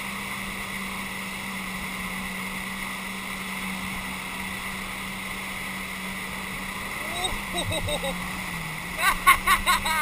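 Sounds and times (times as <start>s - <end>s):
jetski engine running: 0.0s - 10.0s
water churning: 0.0s - 10.0s.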